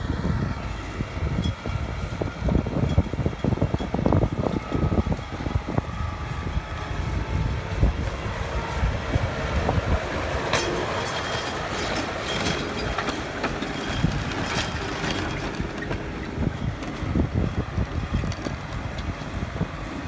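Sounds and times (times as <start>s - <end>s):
tractor diesel engine under load: 0.0s - 20.0s
wind buffeting microphone: 0.0s - 20.0s
plough clicks and rattles: 10.4s - 17.2s.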